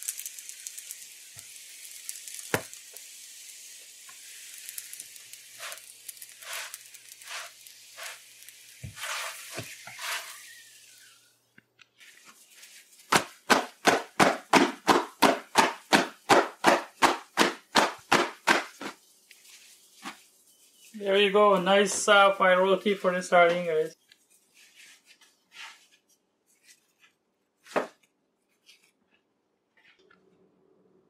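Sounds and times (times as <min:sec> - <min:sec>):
flatbread sizzling in a pan: 0:00.0 - 0:21.6, 0:23.5 - 0:28.8
spatula scraping a pan: 0:05.5 - 0:11.2
hands slapping flatbread: 0:13.0 - 0:19.4.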